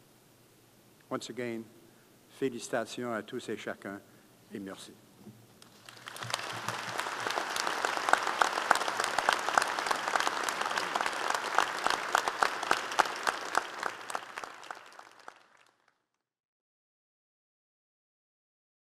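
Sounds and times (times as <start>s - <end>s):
audience applauding: 5.6s - 16.0s.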